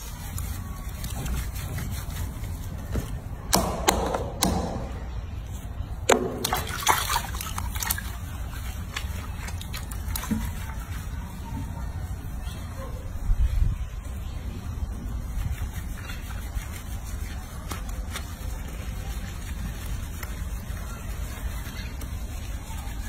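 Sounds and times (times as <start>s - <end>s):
water splashing in a sink: 6.1s - 11.1s.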